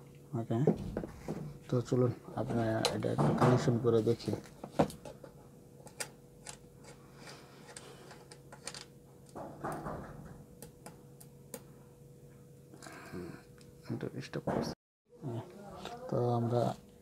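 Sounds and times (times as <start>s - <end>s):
faint steady hum: 0.0s - 14.5s.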